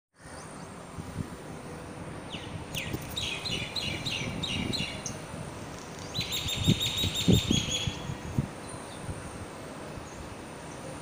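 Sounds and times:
bird chirping: 2.3 - 9.0.

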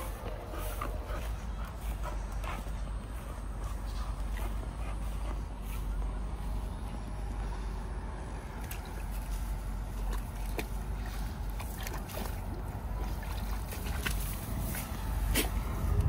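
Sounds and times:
puppy rustling through wet grass: 0.0 - 15.8
low rumble: 13.0 - 16.0.

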